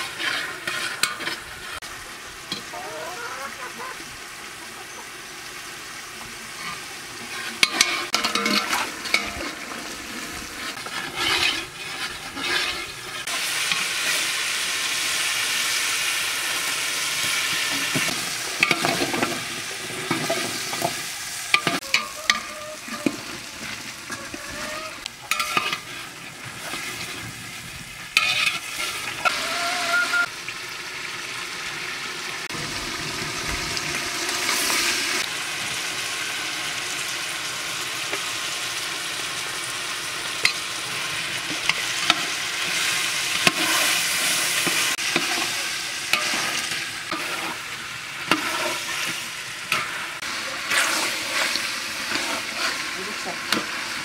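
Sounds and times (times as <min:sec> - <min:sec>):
metal spatula clinking and scraping: 0:00.0 - 0:01.8, 0:06.6 - 0:14.2, 0:17.7 - 0:27.3, 0:28.2 - 0:29.3, 0:41.5 - 0:50.0, 0:50.6 - 0:53.7
food sizzling in oil: 0:00.0 - 0:54.0.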